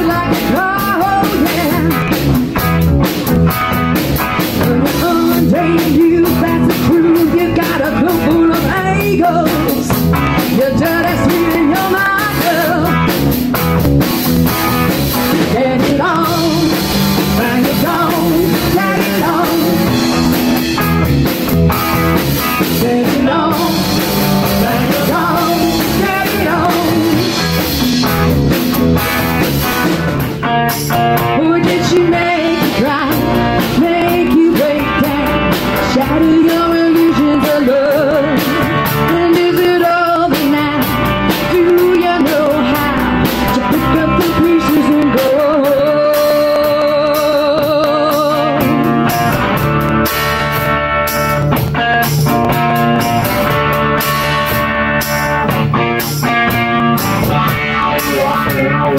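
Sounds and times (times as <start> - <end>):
woman singing: 0.0 - 2.1, 4.6 - 13.2, 15.3 - 20.3, 22.6 - 27.4, 30.7 - 49.1
bass guitar: 0.0 - 58.9
drum kit: 0.0 - 58.9
electric guitars: 0.0 - 58.9.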